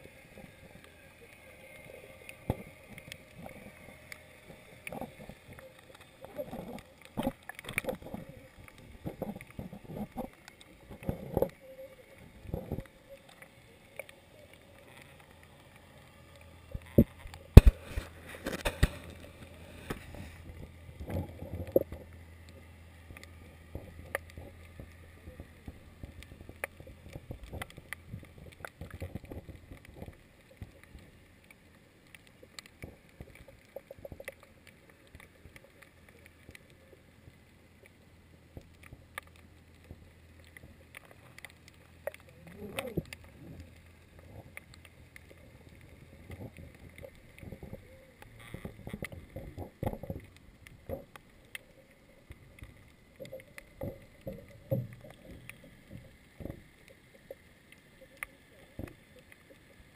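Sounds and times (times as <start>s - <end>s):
low steady hum: 0.0s - 59.9s
muffled underwater knocking and clicking: 16.7s - 31.0s, 38.5s - 59.5s.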